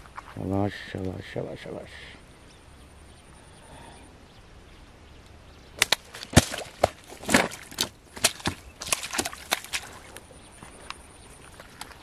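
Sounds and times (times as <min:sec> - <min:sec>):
sharp slaps and knocks: 0:05.8 - 0:10.0.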